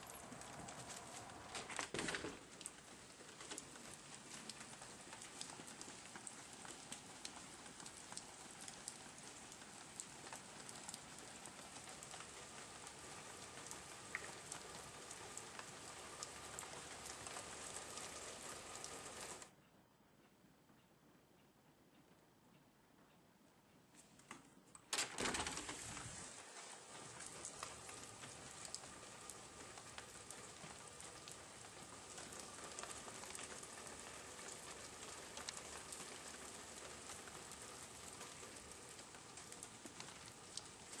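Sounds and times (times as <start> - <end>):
drips pattering: 0.0 - 19.5
rain on a stone patio: 0.0 - 19.5, 24.9 - 41.0
door opening rush: 24.9 - 26.4.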